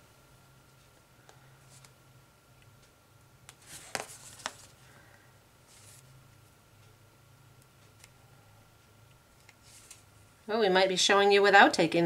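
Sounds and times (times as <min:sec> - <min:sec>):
paper rustling: 0:03.6 - 0:04.8, 0:05.7 - 0:06.1, 0:09.6 - 0:10.1.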